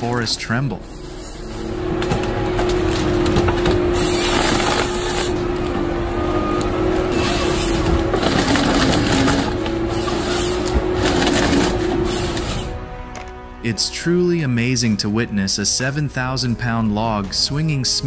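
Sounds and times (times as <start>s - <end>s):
sawing and cracking wood: 0.0s - 5.8s, 7.0s - 13.4s
harvester machine humming: 0.0s - 12.8s.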